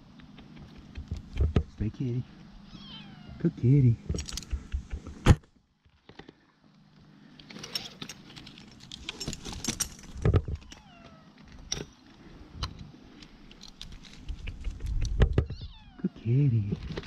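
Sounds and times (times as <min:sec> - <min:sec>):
kitten meowing: 0:02.6 - 0:03.4, 0:15.5 - 0:16.2
metal gear clinking: 0:07.6 - 0:10.2.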